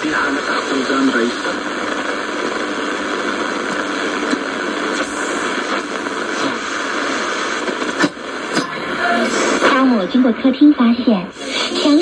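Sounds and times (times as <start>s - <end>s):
radio static hiss: 0.0s - 12.0s
sharp radio crackle: 0.0s - 12.0s.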